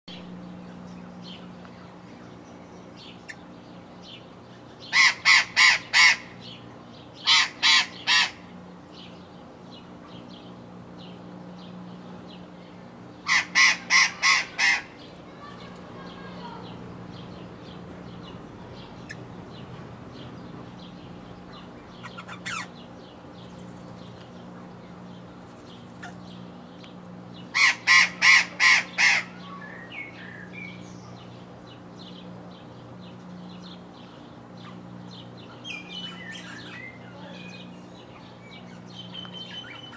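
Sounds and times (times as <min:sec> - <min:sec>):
steady low hum: 0:00.1 - 0:39.9
parrot calling harshly: 0:04.9 - 0:06.4, 0:07.2 - 0:08.4, 0:13.2 - 0:15.5, 0:22.0 - 0:22.8, 0:27.5 - 0:29.8.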